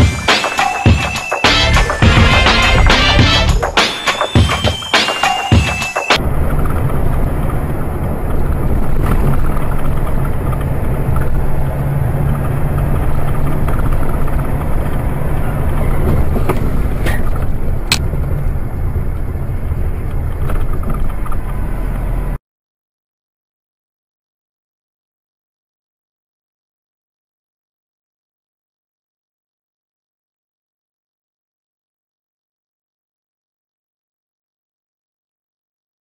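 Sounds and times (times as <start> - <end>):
car engine and road rumble: 1.5 - 4.0, 6.2 - 22.4.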